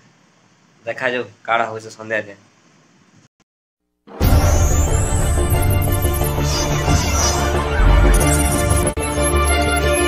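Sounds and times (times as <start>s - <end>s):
music with strong bass: 4.2s - 10.0s.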